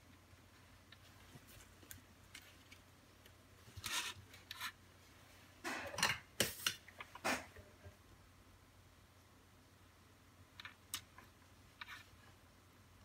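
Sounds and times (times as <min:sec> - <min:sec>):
small parts scraping and clicking: 0:01.8 - 0:04.8, 0:10.6 - 0:12.4.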